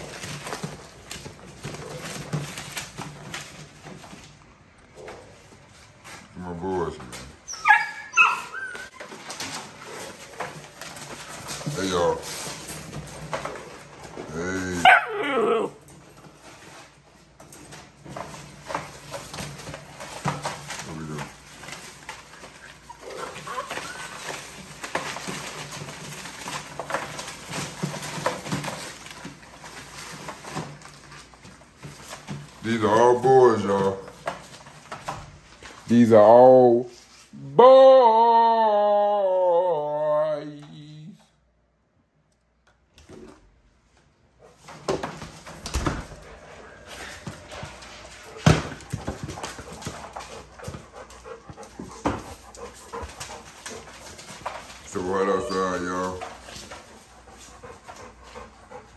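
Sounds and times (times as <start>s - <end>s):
paws scuffing newspaper: 5.0s - 37.3s, 46.2s - 58.9s
puppies whining and grunting: 7.1s - 16.6s, 18.3s - 31.2s, 37.4s - 40.9s, 45.9s - 58.9s
dogs making noise: 7.4s - 11.6s, 13.3s - 15.9s, 19.4s - 28.7s, 45.9s - 58.9s.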